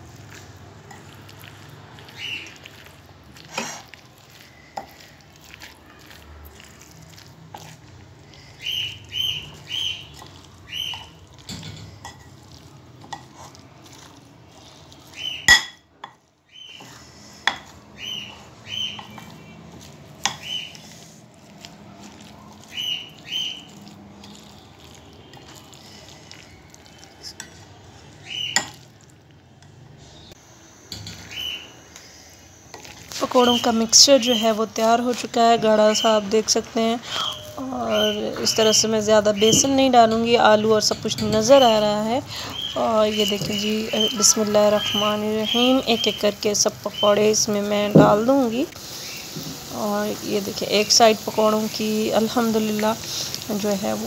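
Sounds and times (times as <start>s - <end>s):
spoon stirring thick batter: 0.0s - 29.8s, 32.4s - 54.0s
high bird chirps: 8.6s - 11.2s, 15.1s - 15.6s, 18.0s - 19.6s, 22.7s - 23.7s, 28.2s - 28.6s, 30.2s - 31.9s, 32.6s - 34.6s, 37.1s - 38.8s, 42.5s - 47.4s.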